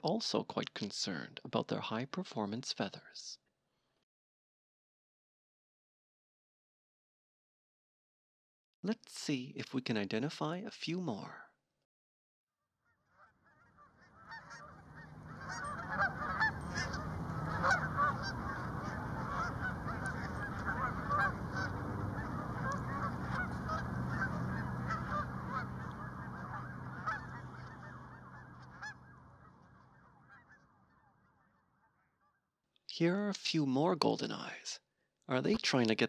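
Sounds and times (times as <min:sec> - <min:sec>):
geese honking: 0:13.2 - 0:31.6.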